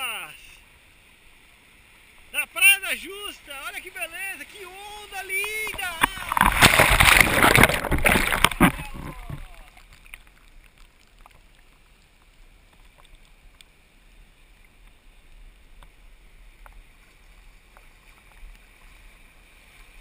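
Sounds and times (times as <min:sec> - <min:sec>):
shallow surf foaming: 0:00.0 - 0:20.0
faint clicks: 0:08.3 - 0:13.8, 0:14.5 - 0:18.7.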